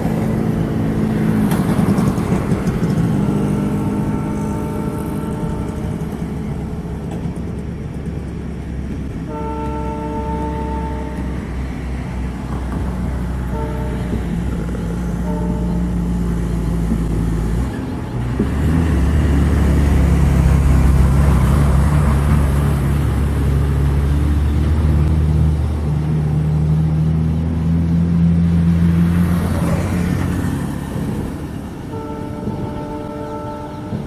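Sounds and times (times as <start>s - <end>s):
diesel locomotive engine droning: 0.0s - 34.0s
train horn note: 3.0s - 6.3s, 9.2s - 11.5s, 13.4s - 14.5s, 15.1s - 16.2s, 31.9s - 34.0s.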